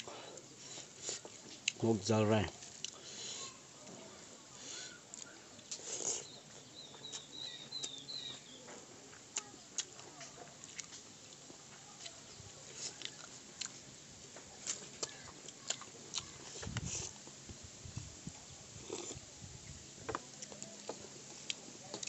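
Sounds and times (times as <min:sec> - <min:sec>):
chewing and smacking noodles: 0:00.0 - 0:01.8, 0:02.6 - 0:03.6, 0:04.9 - 0:08.4, 0:09.1 - 0:17.4, 0:18.8 - 0:19.2, 0:20.1 - 0:22.0
bird chirping: 0:06.2 - 0:08.7.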